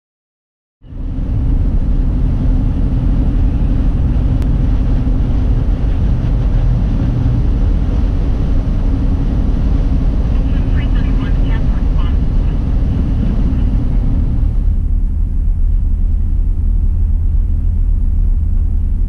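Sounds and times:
car engine and tyres rumbling: 0.8 - 19.0.

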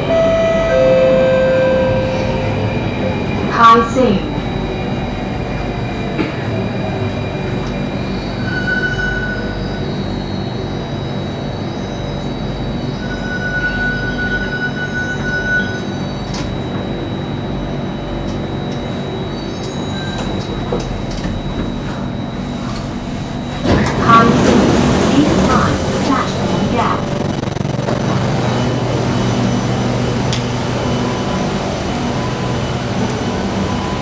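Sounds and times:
train brakes squealing: 0.0 - 16.4, 18.7 - 24.3
train motor hum with high whine: 0.0 - 34.0.

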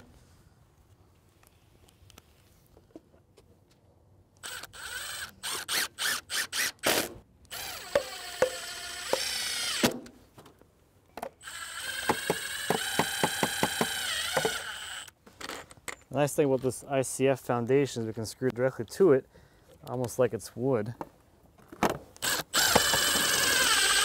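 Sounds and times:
drill regular clicking: 4.3 - 10.0, 11.4 - 15.6, 22.2 - 24.0
cordless drill driving screws: 4.4 - 10.0, 11.4 - 15.6, 22.2 - 24.0.

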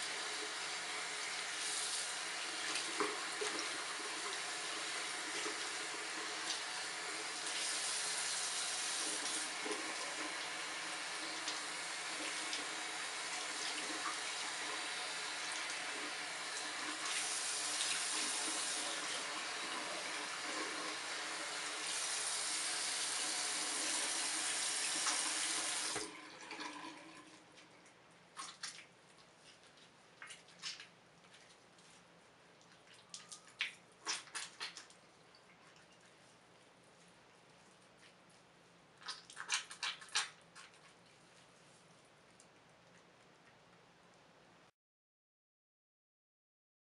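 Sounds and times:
faucet water running: 0.0 - 27.8
water squeezed from fur: 28.3 - 43.1.

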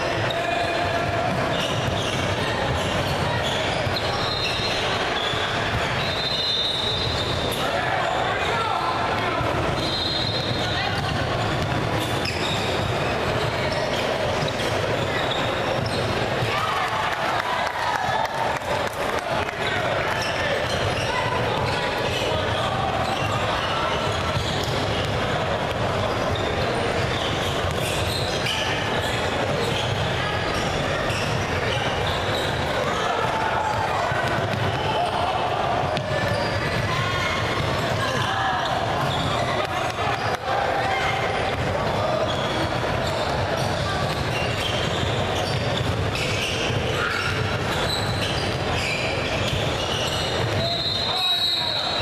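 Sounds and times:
sneakers squeaking: 0.0 - 52.0
ball bouncing on wooden court: 9.1 - 14.8, 23.0 - 28.6, 33.7 - 35.0, 35.7 - 40.4, 41.5 - 50.8
basketball dribbling: 9.4 - 16.5, 20.2 - 32.8, 33.7 - 35.0, 35.7 - 40.4, 41.5 - 51.0.

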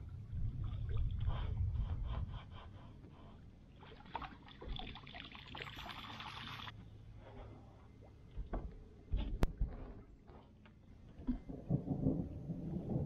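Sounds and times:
low rumble: 0.0 - 3.8, 11.0 - 13.0
water splashing and pouring from bucket: 3.9 - 6.7.

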